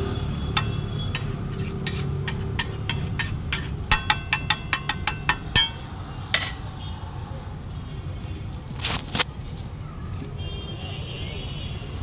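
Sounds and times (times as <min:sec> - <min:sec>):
spatula clanking on iron griddle: 0:00.6 - 0:06.6
spatula scraping: 0:01.1 - 0:05.8.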